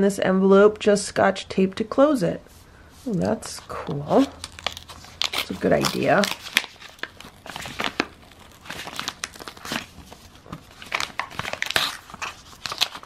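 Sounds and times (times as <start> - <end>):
paper envelope crinkling: 3.0 - 13.0.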